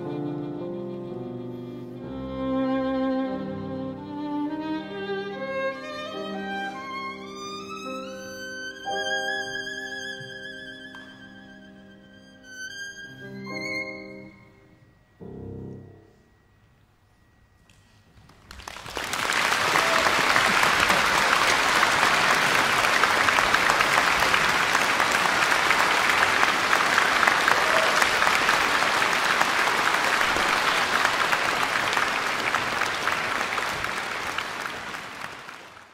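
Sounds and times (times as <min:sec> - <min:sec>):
audience applause: 0:18.2 - 0:35.9.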